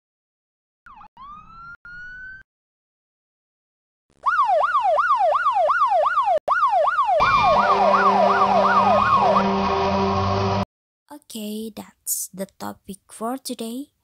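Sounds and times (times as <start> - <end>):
siren steady tones: 0.9 - 2.4, 4.2 - 10.6
siren yelping: 0.9 - 2.4, 4.2 - 10.4.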